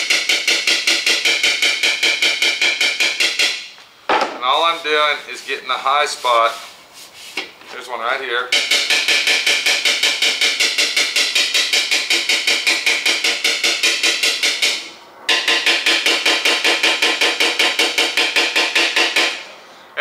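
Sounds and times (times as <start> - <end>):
hammer tapping on metal: 0.0 - 3.7, 8.5 - 19.4.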